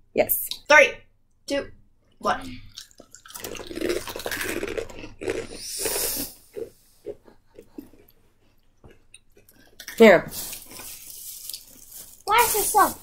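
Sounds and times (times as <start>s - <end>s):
people crunching crisps: 2.7s - 6.7s, 9.4s - 13.0s.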